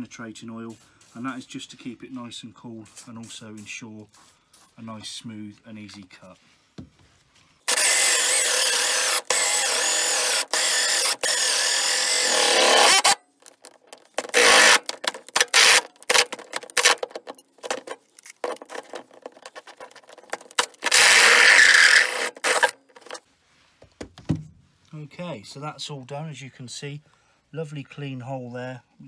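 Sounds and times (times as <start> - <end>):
drill hole saw cutting wood and metal: 7.7 - 13.2, 14.2 - 17.0, 20.6 - 23.2.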